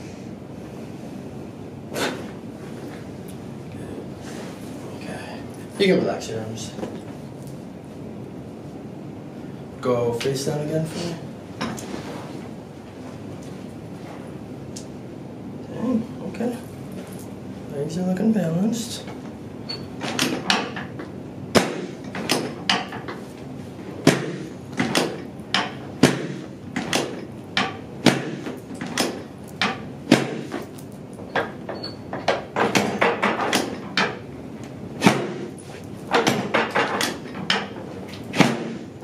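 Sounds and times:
sharp knocks and thumps: 24.0 - 30.7, 31.3 - 34.2, 35.0 - 38.9.

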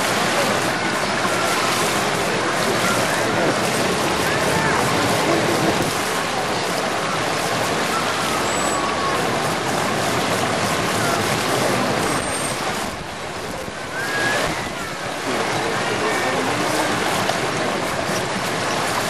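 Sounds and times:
churned water rushing: 0.0 - 19.0
crowd voices: 0.0 - 19.0.

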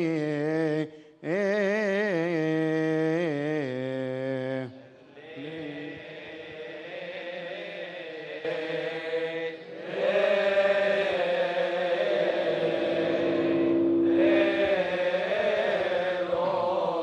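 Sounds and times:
men chanting: 5.1 - 17.0.

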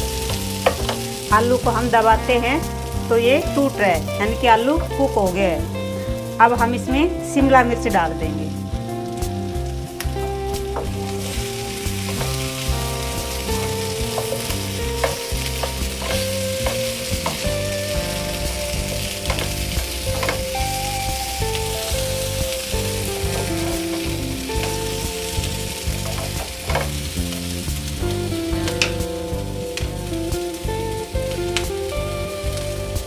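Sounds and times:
vegetables sizzling in a frying pan: 0.0 - 33.0
spatula scraping and knocking pan: 0.1 - 1.3, 10.6 - 20.8, 21.4 - 29.0.

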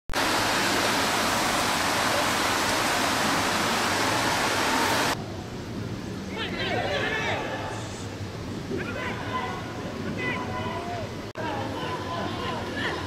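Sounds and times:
heavy rain hissing: 0.1 - 12.8.

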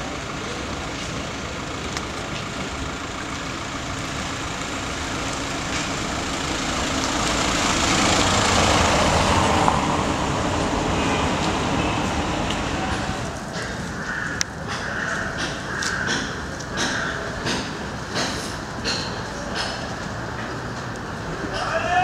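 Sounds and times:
van driving past on wet street: 0.0 - 13.5.

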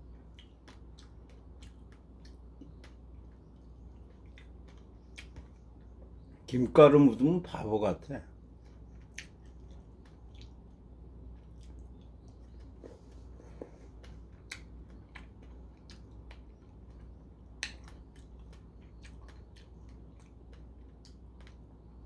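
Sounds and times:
low steady hum: 0.0 - 22.0
wet mouth clicks and smacks: 9.0 - 10.8, 14.0 - 21.6.

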